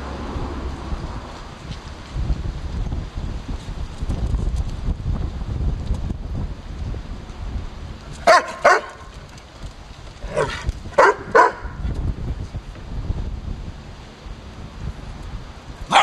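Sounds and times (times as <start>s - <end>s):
dog barking: 8.2s - 9.0s, 10.4s - 11.8s.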